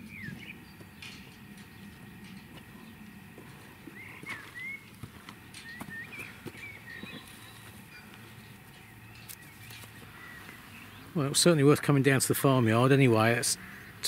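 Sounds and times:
chirping bird calls: 0:00.0 - 0:11.3
footsteps on muddy ground: 0:02.0 - 0:10.7.

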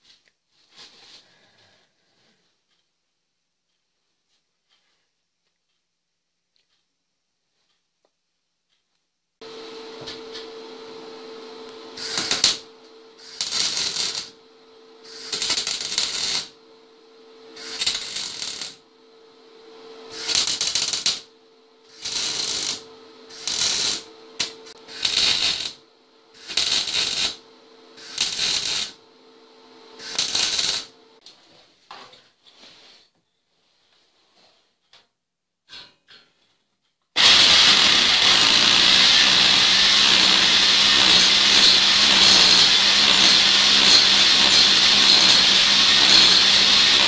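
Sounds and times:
arc welding crackling and sizzling: 0:09.4 - 0:31.2, 0:37.2 - 0:47.0
steady hum: 0:09.4 - 0:31.2.

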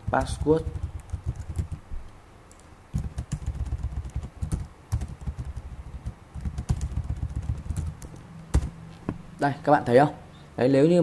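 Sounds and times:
computer keyboard typing: 0:00.0 - 0:01.8, 0:02.5 - 0:08.8.

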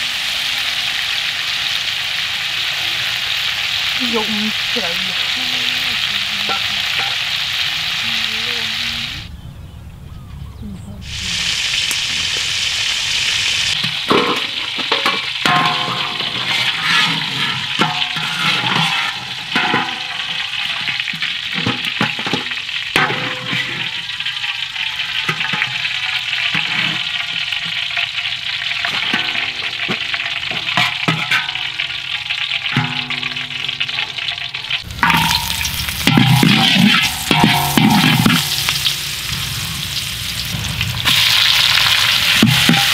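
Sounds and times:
oil sizzling in a wok: 0:00.0 - 0:09.3, 0:11.0 - 0:42.9
metal spatula clinking and scraping: 0:13.8 - 0:39.0, 0:42.3 - 0:42.9.

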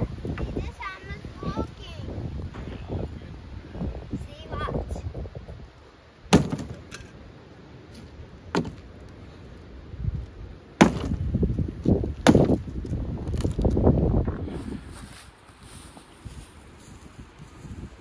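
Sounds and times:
hammer striking wooden boards: 0:06.3 - 0:06.8.

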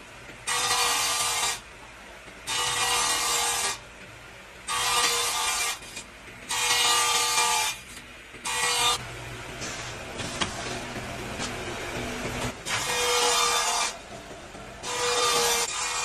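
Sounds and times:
table saw cutting wood: 0:00.4 - 0:01.6, 0:02.5 - 0:03.8, 0:04.7 - 0:14.1, 0:14.8 - 0:16.0.

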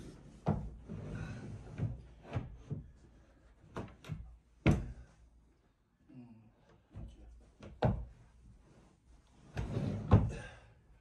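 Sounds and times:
sofa bed frame knocks and clunks: 0:00.3 - 0:01.0, 0:03.6 - 0:05.1, 0:06.9 - 0:08.3, 0:09.5 - 0:10.5.

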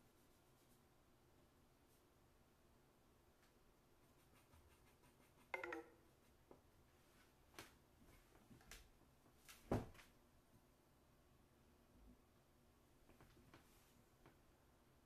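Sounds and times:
chalk pencil drawing on paper: 0:04.0 - 0:05.5
pencil taps and clicks: 0:05.3 - 0:06.0.

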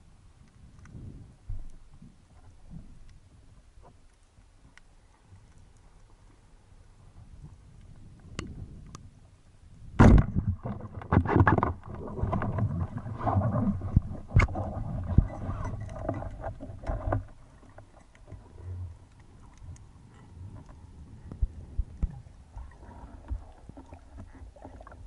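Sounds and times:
underwater water noise: 0:00.0 - 0:25.0.

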